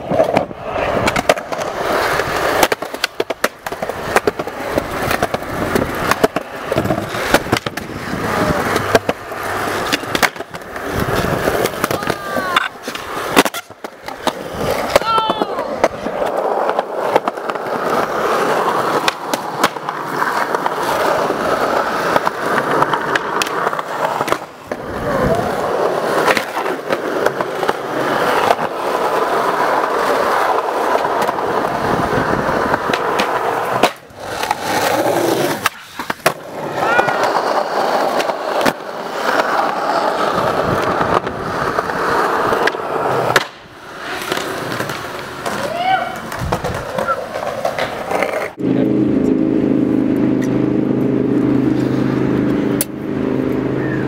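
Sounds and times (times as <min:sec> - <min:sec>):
skateboard clacks: 0:00.0 - 0:48.6
skateboard wheels rumbling: 0:00.0 - 0:54.0.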